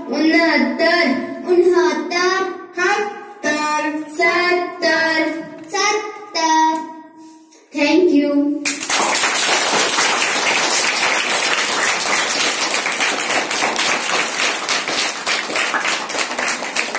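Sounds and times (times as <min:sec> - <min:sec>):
children clapping: 0:08.6 - 0:16.9.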